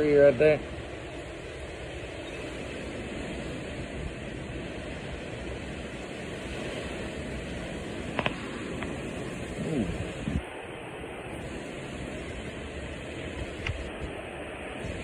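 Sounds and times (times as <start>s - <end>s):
storm wind: 0.0s - 15.0s
heavy rain: 3.4s - 15.0s.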